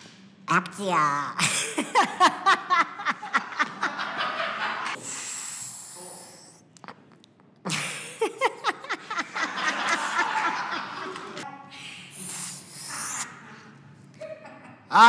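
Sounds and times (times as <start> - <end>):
man laughing hard: 1.4 - 4.9, 7.7 - 11.2
long hissing breath: 5.0 - 6.6, 12.1 - 13.2.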